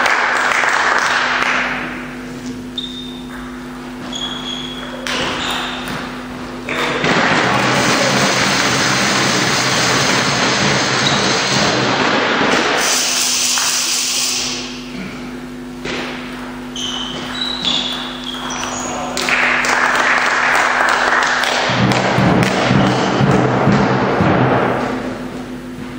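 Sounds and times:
crowd clapping and cheering: 0:00.0 - 0:02.1, 0:06.6 - 0:12.8, 0:13.4 - 0:13.9, 0:17.9 - 0:24.8
shoe squeaks: 0:02.4 - 0:06.2, 0:11.0 - 0:11.6, 0:16.6 - 0:19.2.

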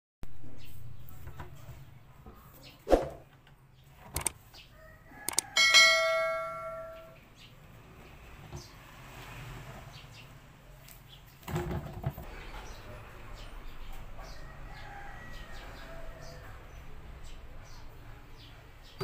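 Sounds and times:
faint background noise: 0:00.3 - 0:19.0.

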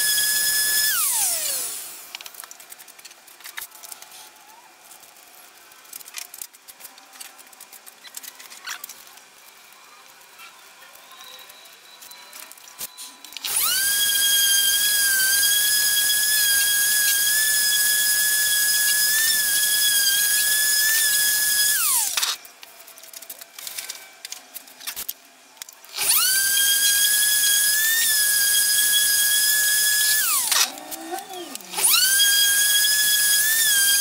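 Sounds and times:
orbital sander whining: 0:13.5 - 0:22.2, 0:26.0 - 0:34.0.

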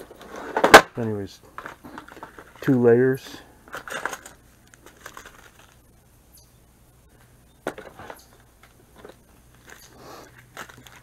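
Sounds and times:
plastic packaging crinkling: 0:03.7 - 0:05.8, 0:07.8 - 0:11.0.

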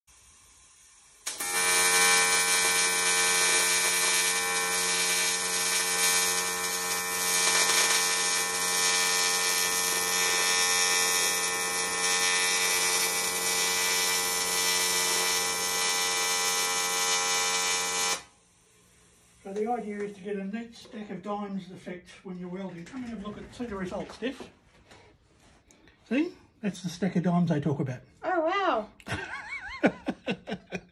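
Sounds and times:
welding arc buzzing: 0:00.1 - 0:20.1
welding arc striking click: 0:01.2 - 0:18.2.

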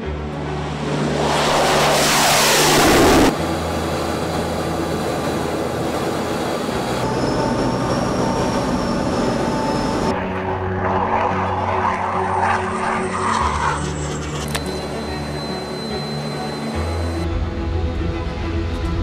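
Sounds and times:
jet engines roaring past: 0:00.0 - 0:19.0.

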